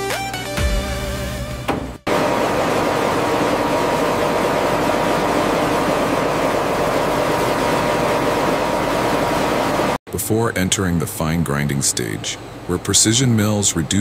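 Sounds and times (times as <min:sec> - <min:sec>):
electronic music: 0:00.0 - 0:02.1
factory machinery running: 0:01.1 - 0:14.0.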